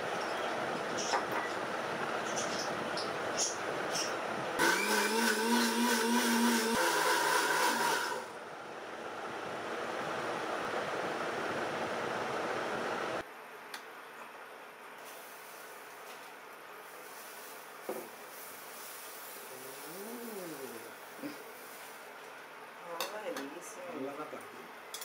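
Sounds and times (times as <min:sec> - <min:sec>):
mixer grinder motor running: 0:04.6 - 0:08.4.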